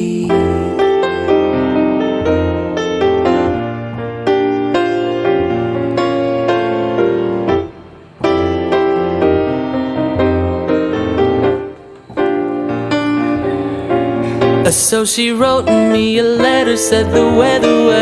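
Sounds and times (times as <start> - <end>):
gentle piano music: 0.0 - 18.0.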